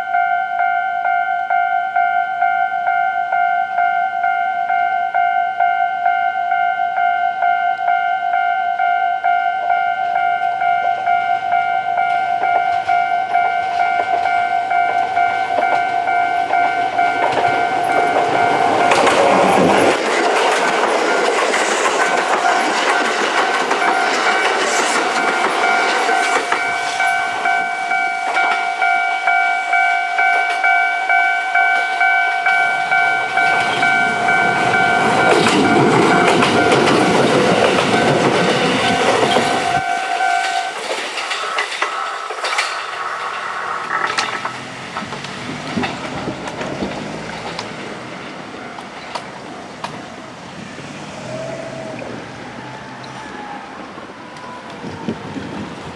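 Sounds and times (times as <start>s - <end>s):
level crossing alarm ringing: 0.0s - 50.4s
train wheels clacking: 10.4s - 50.2s.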